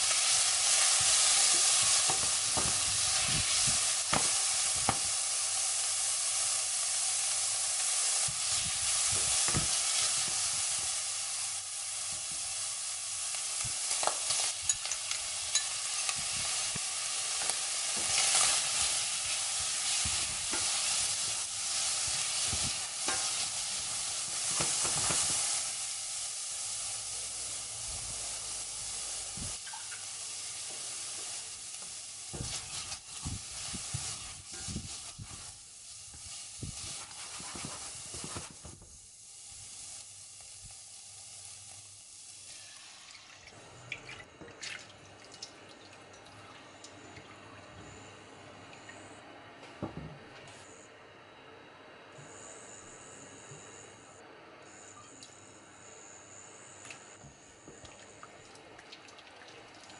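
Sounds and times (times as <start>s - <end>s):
seafood sizzling in hot oil: 0.0s - 43.6s
spatula scraping a pan: 36.8s - 38.5s.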